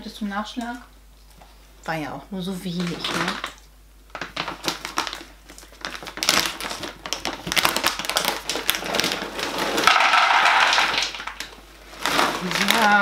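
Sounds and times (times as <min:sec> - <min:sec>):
plastic bag crinkling: 0:02.6 - 0:13.0.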